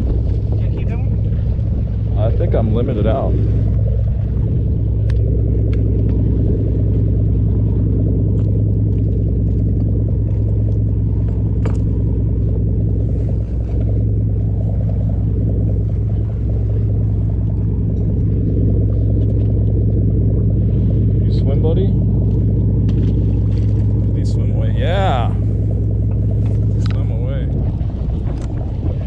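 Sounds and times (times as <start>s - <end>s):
boat engine droning: 0.0s - 29.0s.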